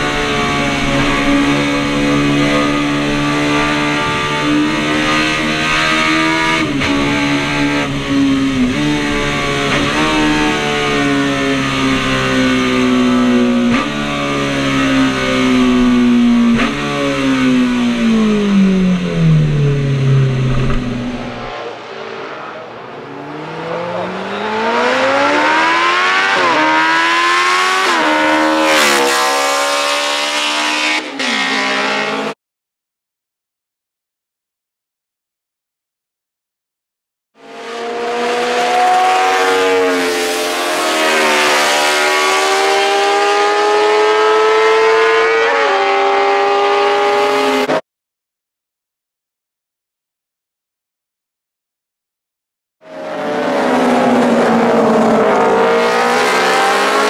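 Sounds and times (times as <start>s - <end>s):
racing motorcycle engine revving: 0.0s - 32.4s, 37.4s - 47.8s, 52.9s - 57.0s.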